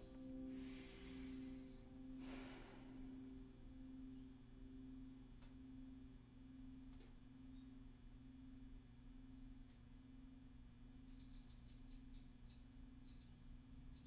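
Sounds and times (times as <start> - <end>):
singing bowl ringing: 0.0 - 6.8.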